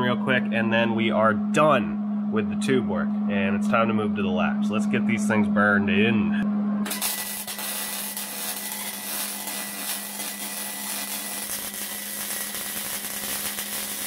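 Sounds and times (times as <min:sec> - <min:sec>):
welder arc crackling: 0:06.9 - 0:14.0.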